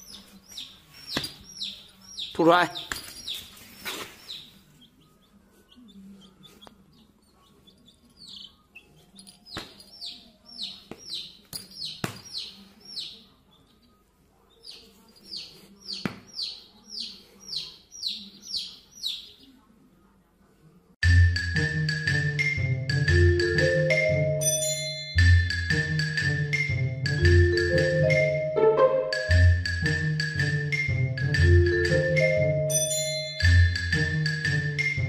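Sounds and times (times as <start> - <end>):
baby chick peeping: 0.0 - 19.8.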